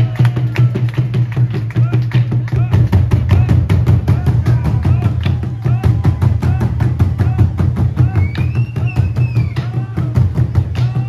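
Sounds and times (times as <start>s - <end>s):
music with fast drum beat: 0.0s - 11.0s
heavy bass line: 2.6s - 11.0s.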